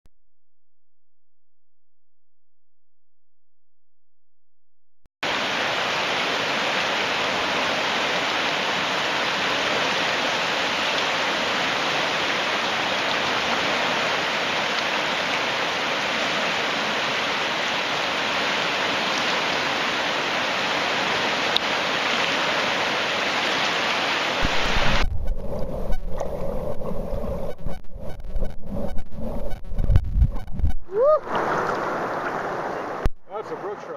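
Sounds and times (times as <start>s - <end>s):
river rapids rushing: 5.3s - 25.0s
underwater rumble and thumps: 24.4s - 33.3s.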